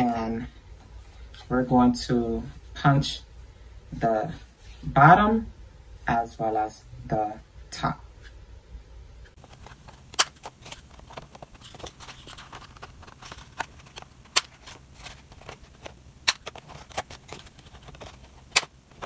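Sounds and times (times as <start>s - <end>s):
paper rustling: 9.4s - 19.0s.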